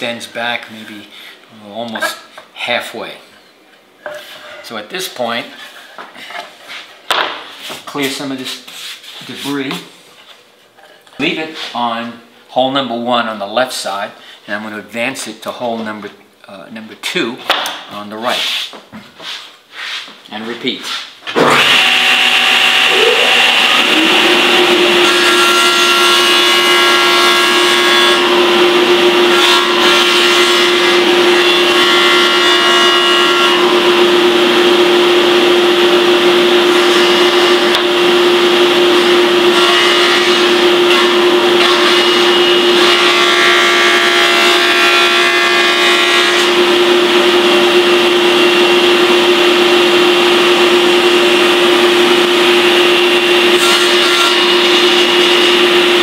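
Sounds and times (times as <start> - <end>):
saw blade cutting wood: 20.9 - 33.7, 53.4 - 55.4
table saw motor running: 21.4 - 56.0.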